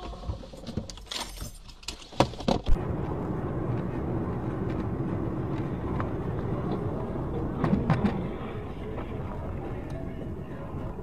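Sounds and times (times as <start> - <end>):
vehicle driving noise: 2.7 - 11.0.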